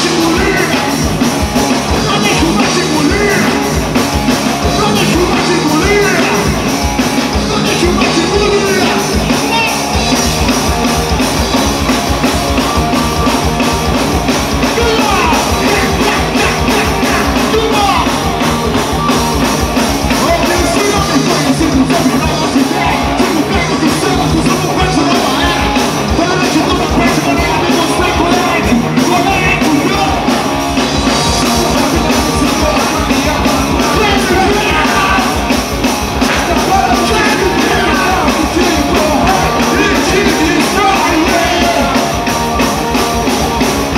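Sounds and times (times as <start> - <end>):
man singing: 0.0 - 1.2, 1.8 - 3.9, 4.6 - 10.1, 14.6 - 18.3, 20.0 - 35.6, 36.2 - 42.3
drums: 0.0 - 43.9
electric guitar: 0.0 - 43.9.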